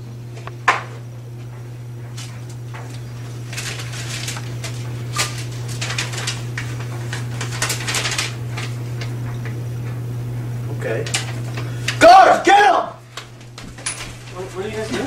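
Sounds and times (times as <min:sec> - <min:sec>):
low electrical hum: 0:00.0 - 0:15.0
paper crumpling: 0:02.2 - 0:09.2.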